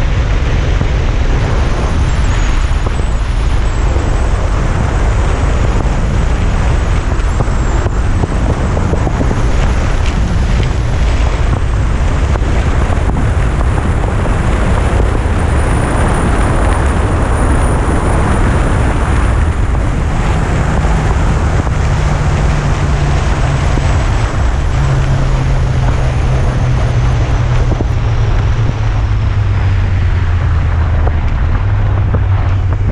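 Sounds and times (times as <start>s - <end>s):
motorcycle engine drone: 0.0s - 32.9s
wind rush on microphone: 0.0s - 32.9s.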